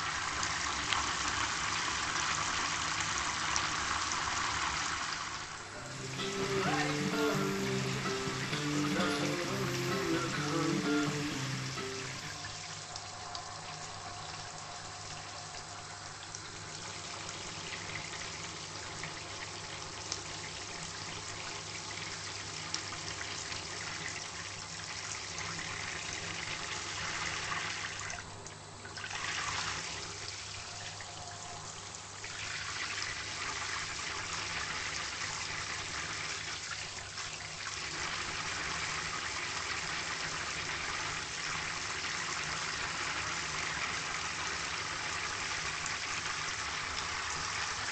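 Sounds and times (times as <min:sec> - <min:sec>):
running water rushing: 0:00.0 - 0:23.2.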